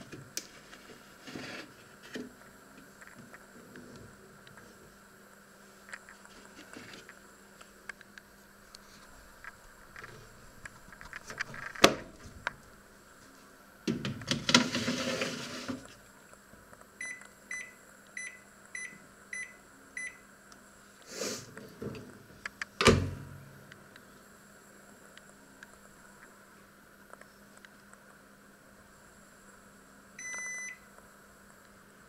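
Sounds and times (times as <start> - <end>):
microwave button beeps: 17.0 - 20.2, 30.2 - 30.8.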